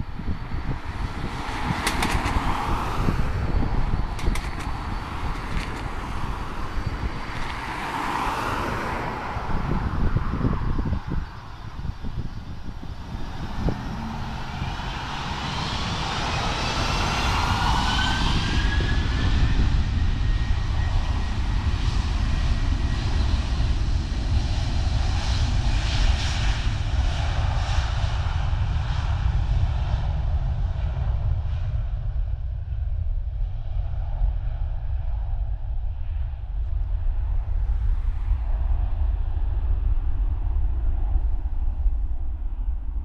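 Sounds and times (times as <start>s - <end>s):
jet engines whining: 0.0s - 30.0s
jet engines roaring at takeoff: 0.0s - 43.0s.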